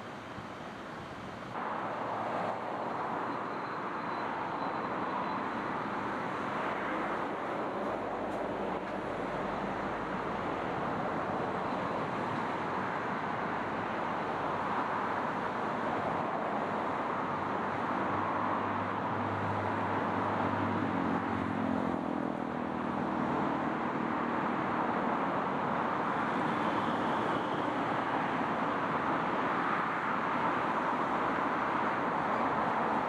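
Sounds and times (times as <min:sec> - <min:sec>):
river water rushing: 0:00.0 - 0:20.6
distant road traffic: 0:00.0 - 0:33.0
passing vehicle engine hum: 0:01.6 - 0:33.0.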